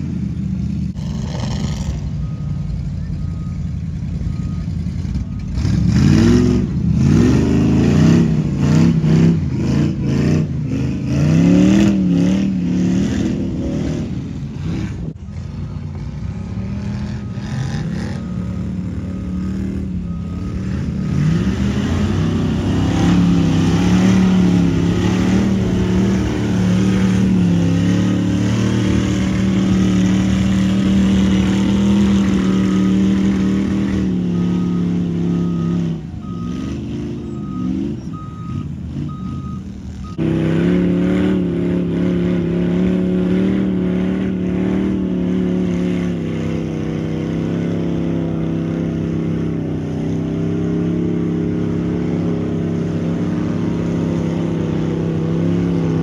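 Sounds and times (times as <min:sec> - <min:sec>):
truck engine revving high: 0:00.0 - 0:56.0
repeating high beep: 0:16.8 - 0:40.4.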